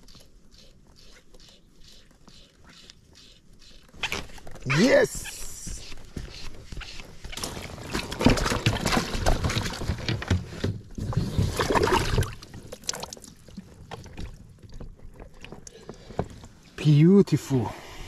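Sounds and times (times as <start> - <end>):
water dripping: 11.8 - 15.8.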